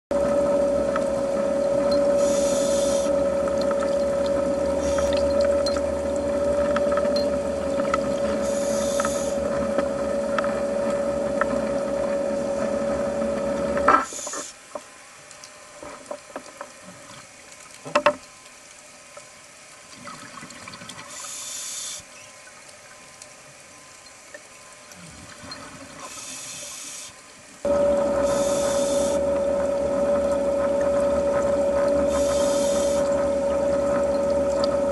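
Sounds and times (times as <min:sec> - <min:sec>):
mechanical hum: 0:00.1 - 0:17.6, 0:18.2 - 0:34.9
exhaled bubbles hissing: 0:00.2 - 0:14.6, 0:20.0 - 0:22.4, 0:24.9 - 0:34.9
low underwater rumble: 0:27.7 - 0:34.9.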